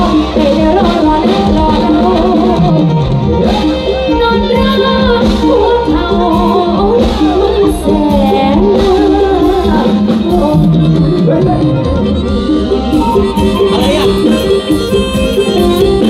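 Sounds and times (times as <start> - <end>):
woman singing: 0.0 - 12.0
band music through loudspeakers: 0.0 - 16.0.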